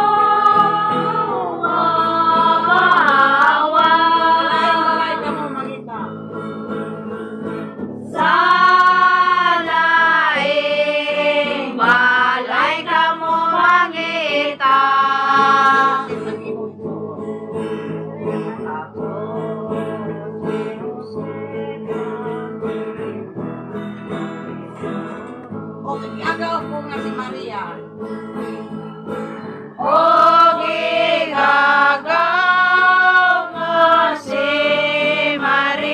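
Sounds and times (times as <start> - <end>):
group singing: 0.0 - 5.8, 8.1 - 23.2, 29.8 - 35.9
strummed guitars: 0.0 - 35.9.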